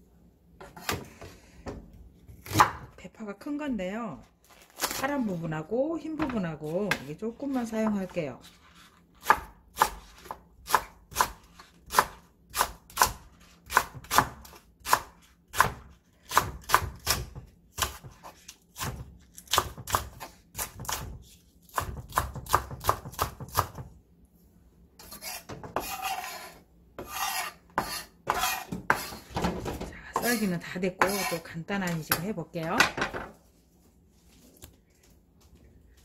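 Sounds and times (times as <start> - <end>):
knife chopping on wooden board: 0.6 - 1.8, 2.4 - 2.9, 9.2 - 23.9, 25.0 - 30.4, 31.0 - 31.4
knife scraping across board: 25.0 - 29.3, 30.2 - 31.4.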